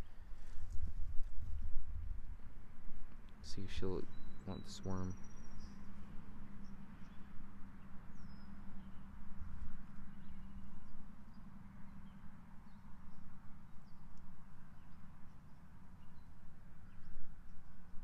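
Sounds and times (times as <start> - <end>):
low steady rumble: 0.0 - 18.0
faint bird chirps: 3.4 - 9.1.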